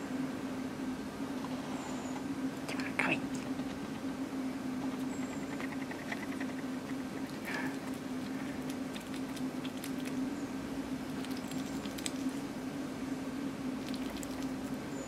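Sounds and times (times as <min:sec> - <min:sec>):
steady low hum: 0:00.0 - 0:15.0
hedgehog chewing clicks and smacks: 0:04.8 - 0:10.3, 0:10.9 - 0:12.5, 0:13.8 - 0:15.0.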